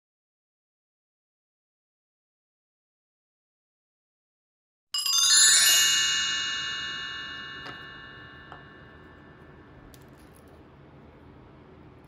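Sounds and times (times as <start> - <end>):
bright transition chime: 5.1 - 9.7.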